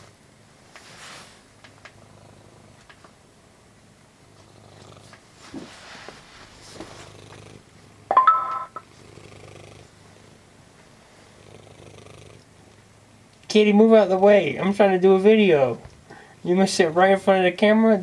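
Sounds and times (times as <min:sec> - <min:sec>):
cat purring: 0:00.8 - 0:03.1, 0:04.2 - 0:08.1, 0:08.8 - 0:10.5, 0:11.1 - 0:12.9.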